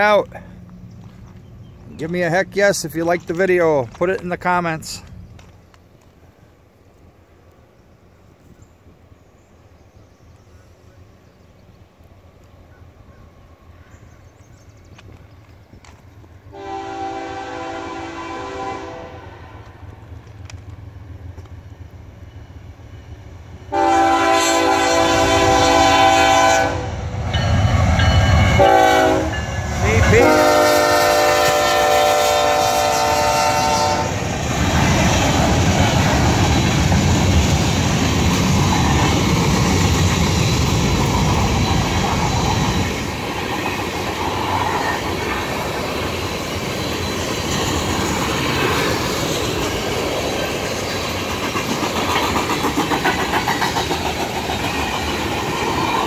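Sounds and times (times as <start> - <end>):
train rumbling past: 0.0 - 56.0
locomotive horn blasts: 16.5 - 19.6, 23.7 - 27.0, 27.7 - 34.2
wheels clacking over rail joints: 34.2 - 56.0.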